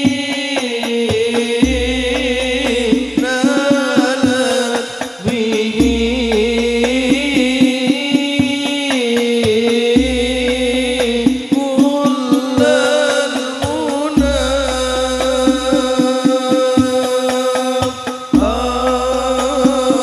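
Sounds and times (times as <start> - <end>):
frame drums beating: 0.0 - 20.0
man singing devotional melody: 0.0 - 20.0.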